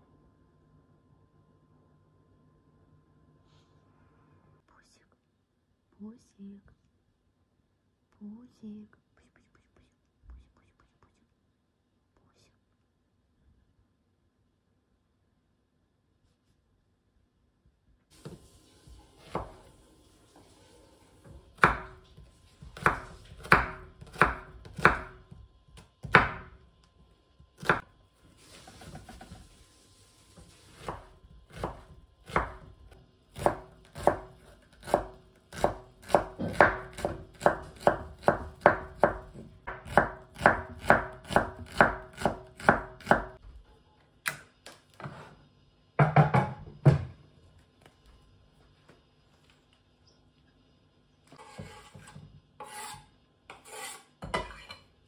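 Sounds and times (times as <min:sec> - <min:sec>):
knife chopping on cutting board: 0:21.6 - 0:22.0, 0:22.6 - 0:26.6, 0:27.6 - 0:27.8, 0:30.8 - 0:32.7, 0:33.4 - 0:43.4.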